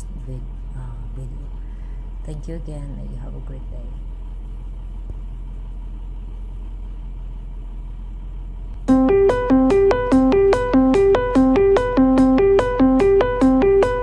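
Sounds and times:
low background hum: 0.0s - 14.0s
keyboard melody: 8.8s - 14.0s.

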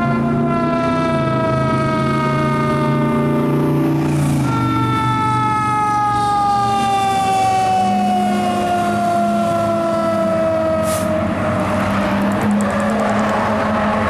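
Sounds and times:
fire engine siren winding down: 0.0s - 14.0s
road noise: 0.0s - 14.0s
truck engine drone: 0.0s - 14.0s.

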